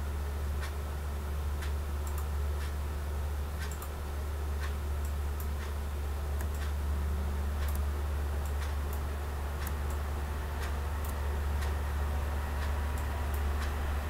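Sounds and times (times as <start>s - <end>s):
low electrical hum: 0.0s - 14.0s
computer mouse clicking: 6.4s - 6.8s, 9.6s - 10.0s.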